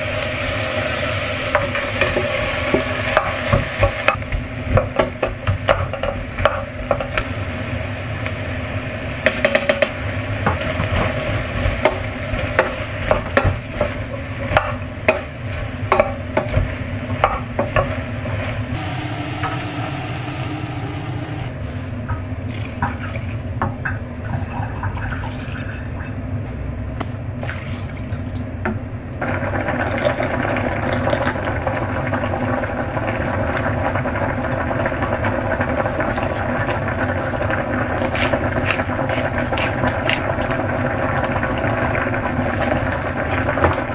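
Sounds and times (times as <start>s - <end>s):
vegetables frying: 0.0s - 20.2s, 29.2s - 43.9s
soup boiling: 0.0s - 26.4s, 27.2s - 43.9s
liquid pouring into pot: 29.2s - 43.9s.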